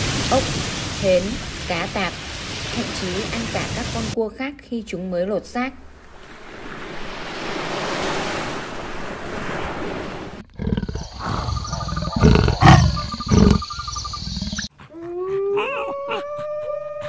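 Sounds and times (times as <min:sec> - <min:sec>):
surf washing: 0:00.0 - 0:04.2, 0:06.0 - 0:10.4
leopard growling: 0:10.4 - 0:14.8.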